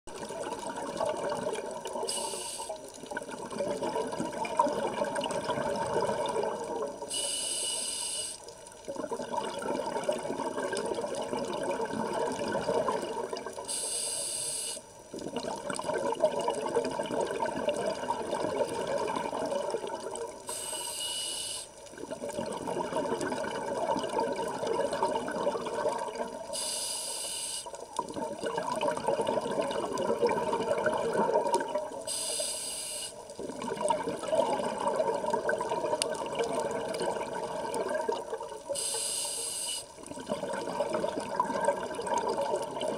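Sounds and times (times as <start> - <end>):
gurgling exhaled bubbles: 0.1 - 7.1, 8.8 - 13.7, 15.1 - 20.5, 21.9 - 26.6, 27.9 - 32.1, 33.3 - 38.8, 40.0 - 42.9
regulator inhale hiss: 2.0 - 2.8, 7.1 - 8.5, 13.7 - 14.9, 20.5 - 21.8, 26.5 - 27.8, 32.1 - 33.2, 38.7 - 40.0.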